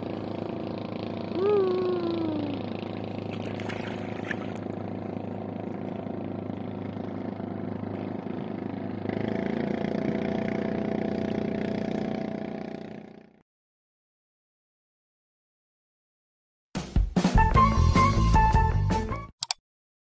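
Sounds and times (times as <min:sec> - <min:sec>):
boat engine droning: 0:00.0 - 0:13.4.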